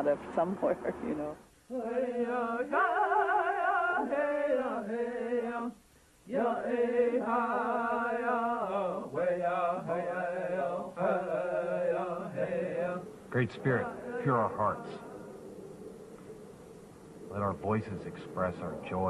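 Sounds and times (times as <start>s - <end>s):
chanting with wavering sung notes: 1.7s - 19.0s.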